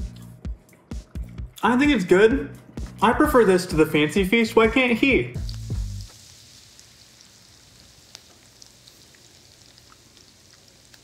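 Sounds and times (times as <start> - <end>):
food sizzling with pops: 4.5 - 11.0.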